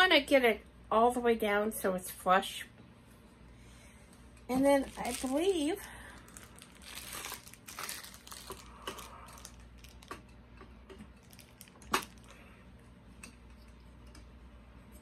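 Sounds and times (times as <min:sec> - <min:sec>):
plastic wrapping crinkling: 0:04.5 - 0:12.5.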